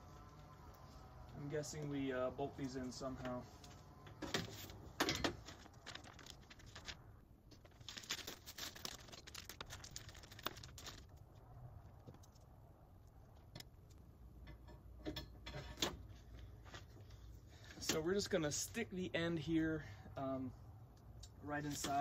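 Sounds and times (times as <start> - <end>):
paper rustling: 2.7 - 11.3.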